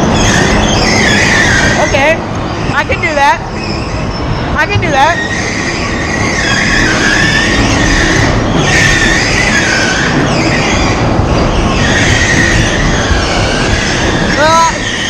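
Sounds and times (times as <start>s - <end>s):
bumper cars rolling rumble: 0.0s - 15.0s.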